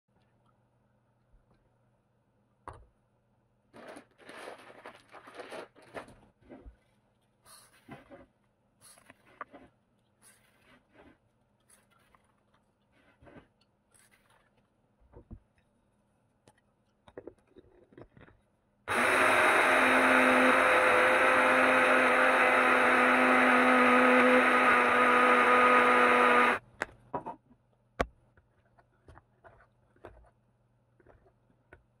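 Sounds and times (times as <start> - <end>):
electric coffee grinder running: 18.9 - 26.6.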